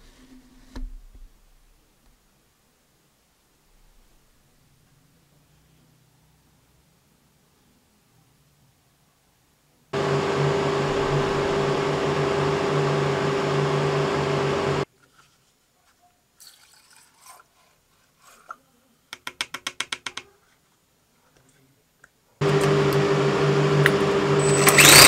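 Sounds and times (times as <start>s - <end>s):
loud whirring drone: 10.0s - 14.8s, 22.4s - 25.0s.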